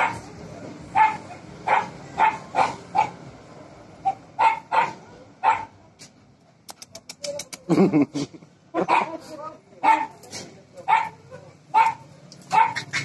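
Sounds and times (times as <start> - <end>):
dog barking: 0.0 - 0.2, 0.9 - 3.2, 4.0 - 5.8, 8.8 - 9.2, 9.8 - 10.2, 10.8 - 13.0.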